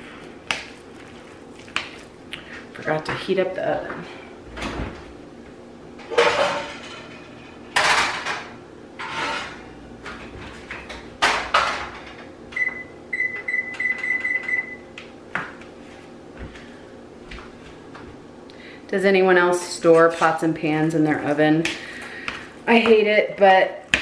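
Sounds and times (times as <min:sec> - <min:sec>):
metal pots and pans clanking: 0:06.0 - 0:09.6
oven control panel beeps: 0:12.5 - 0:14.9.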